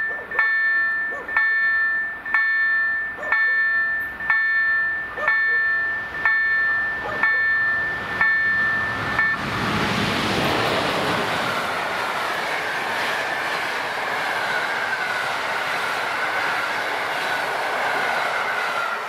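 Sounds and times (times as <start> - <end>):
level-crossing warning bells: 0.0 - 9.6
oncoming train rushing: 0.0 - 19.0.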